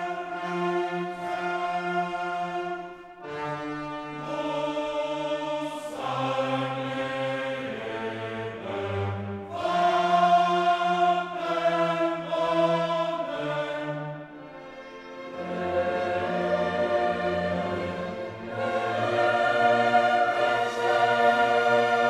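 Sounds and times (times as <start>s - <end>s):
choir singing held chords: 0.0s - 22.0s
orchestra playing: 13.3s - 22.0s.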